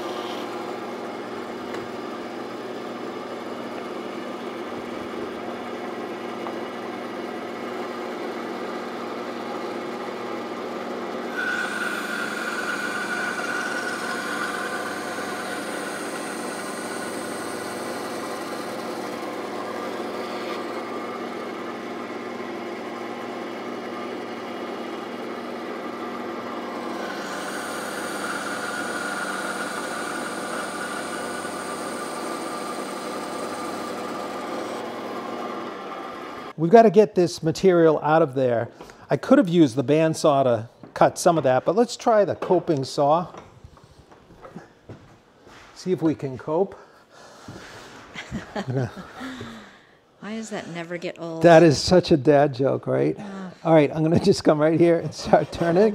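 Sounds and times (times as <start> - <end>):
bandsaw running: 9.2 - 23.9, 24.8 - 36.5, 48.2 - 49.7, 54.0 - 55.9
saw blade cutting wood: 11.3 - 21.0, 26.8 - 34.8.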